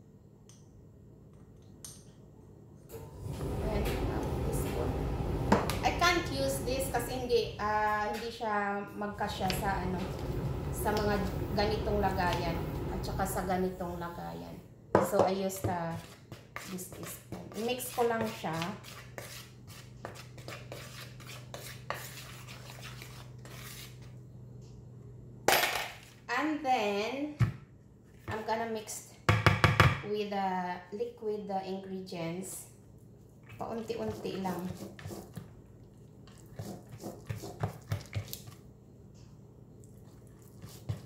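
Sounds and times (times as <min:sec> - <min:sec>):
spatula stirring wet batter: 0:15.4 - 0:24.2, 0:33.3 - 0:38.7, 0:39.8 - 0:41.0
spoon scraping in plastic bowl: 0:15.9 - 0:24.1, 0:33.7 - 0:35.4, 0:36.3 - 0:38.6, 0:40.0 - 0:41.0.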